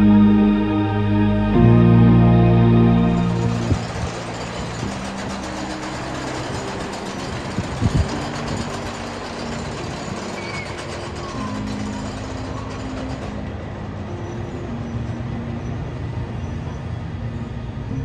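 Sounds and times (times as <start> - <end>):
low held tones: 0.0 - 12.8
roller coaster rumbling on wooden track: 3.2 - 15.5.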